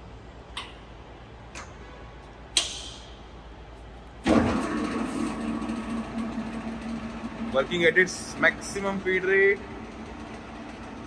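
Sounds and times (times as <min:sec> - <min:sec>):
lathe running with gear hum: 0:04.2 - 0:11.0.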